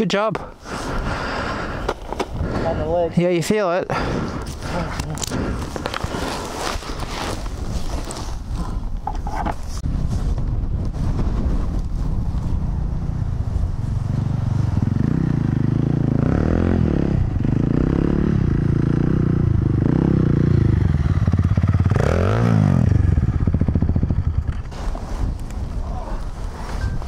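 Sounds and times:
motorcycle engine revving: 0:13.9 - 0:24.7.

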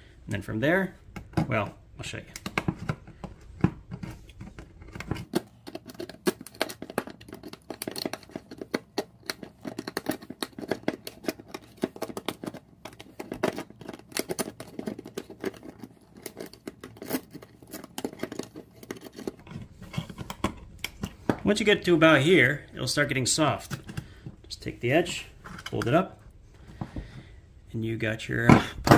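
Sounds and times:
pliers tearing metal can lid: 0:05.1 - 0:19.4.

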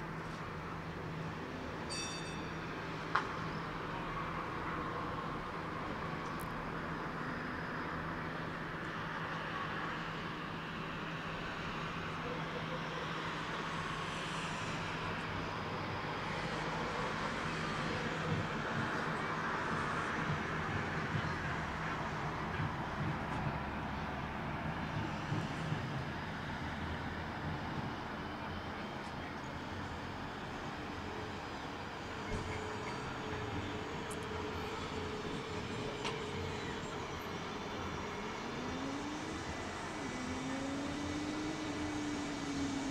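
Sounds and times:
distant city noise: 0:00.0 - 0:42.9
faint rising whine: 0:32.7 - 0:42.9.

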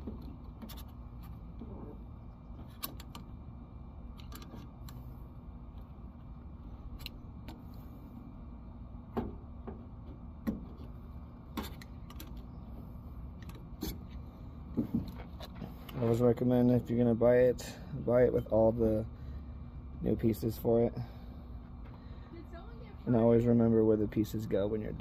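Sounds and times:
low background rumble: 0:00.0 - 0:25.0.

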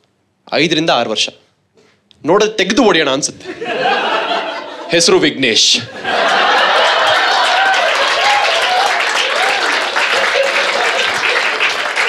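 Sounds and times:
people laughing: 0:03.4 - 0:12.0
audience applauding: 0:06.0 - 0:12.0.

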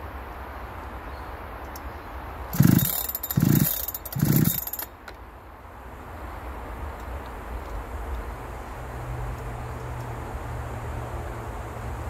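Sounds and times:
chainsaw pull-starter rasp: 0:02.5 - 0:04.9.

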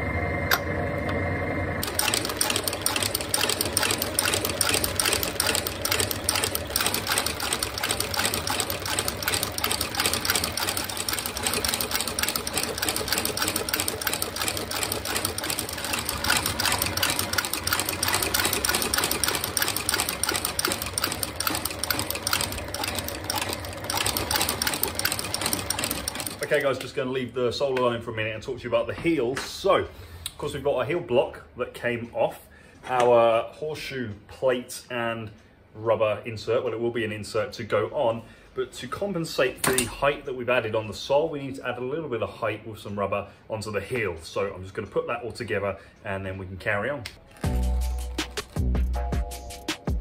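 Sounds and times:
stitching machine clattering: 0:01.8 - 0:26.8.

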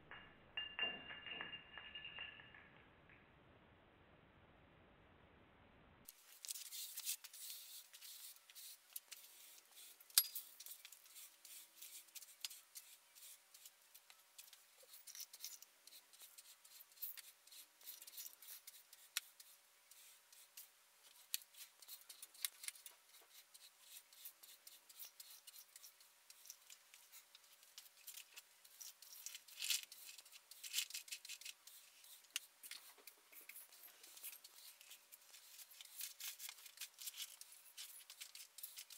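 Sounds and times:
tiny clinks of metal and glass: 0:00.0 - 0:02.8, 0:10.1 - 0:11.0, 0:14.8 - 0:15.7
broom sweeping concrete floor: 0:06.1 - 0:13.8.

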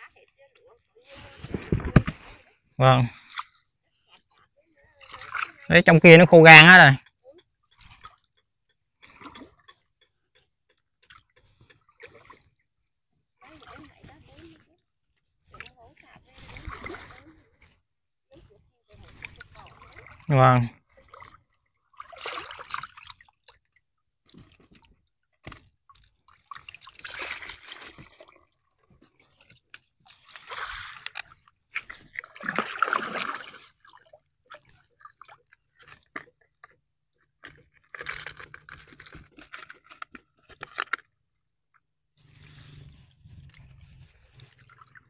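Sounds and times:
water splashing and dripping: 0:19.0 - 0:36.8
wet net clicking and crackling: 0:37.4 - 0:41.1.

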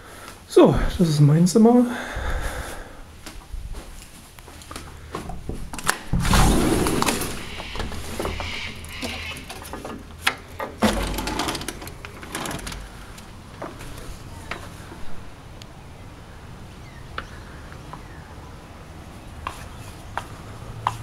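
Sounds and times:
door rattling and clicking: 0:05.3 - 0:13.3.

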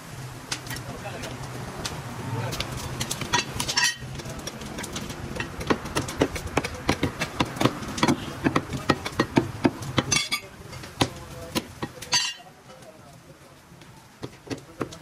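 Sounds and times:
cleaver chopping meat on wood: 0:04.2 - 0:12.0, 0:14.2 - 0:15.0.

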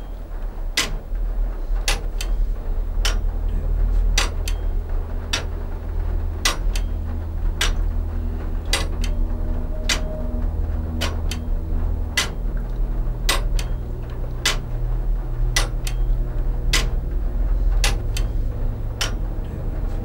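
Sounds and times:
low hum: 0:00.0 - 0:20.0
clock ticking: 0:00.7 - 0:01.1, 0:01.8 - 0:02.4, 0:03.0 - 0:03.3, 0:03.9 - 0:05.6, 0:06.4 - 0:08.0, 0:08.6 - 0:13.8, 0:14.4 - 0:14.8, 0:15.5 - 0:17.1, 0:17.8 - 0:20.0.

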